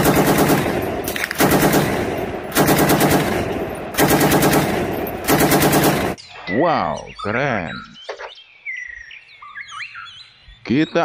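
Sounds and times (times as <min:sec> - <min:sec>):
machine-gun fire: 0:00.0 - 0:06.2.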